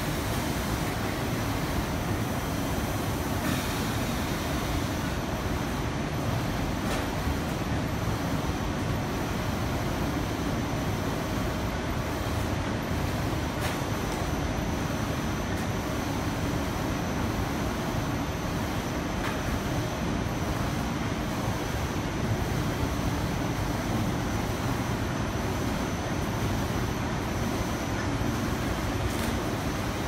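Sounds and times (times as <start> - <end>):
machine motors humming and hissing: 0.0 - 30.0.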